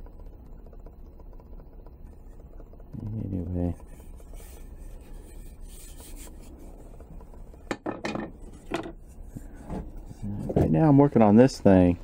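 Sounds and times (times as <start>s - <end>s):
wood rubbing and scraping: 3.5s - 11.3s.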